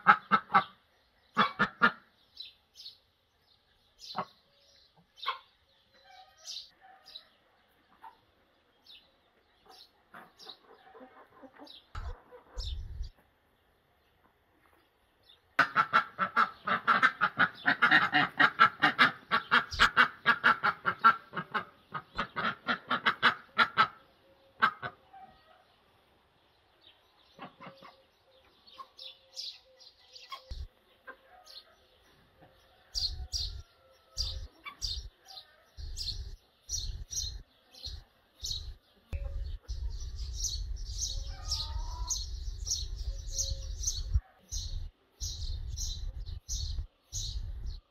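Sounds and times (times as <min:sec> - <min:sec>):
ducks quacking: 0:00.0 - 0:02.2, 0:15.6 - 0:25.1, 0:27.4 - 0:28.0
small birds chirping: 0:00.0 - 0:47.9.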